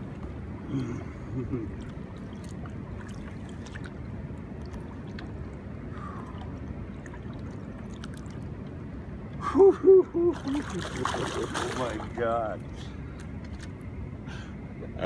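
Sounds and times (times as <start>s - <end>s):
river water lapping: 0.0s - 15.0s.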